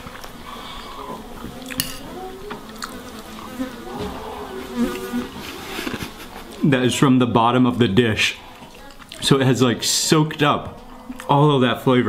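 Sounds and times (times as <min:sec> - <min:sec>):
cutlery clicking on a plate: 0:01.7 - 0:02.0
flying insect buzzing: 0:03.0 - 0:05.7.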